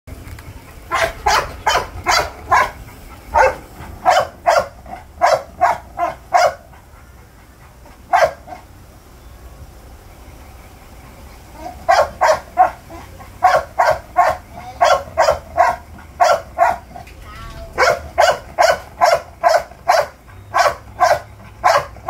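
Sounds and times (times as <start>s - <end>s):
puppy barking: 0.9s - 6.9s, 8.1s - 8.7s, 11.6s - 22.0s.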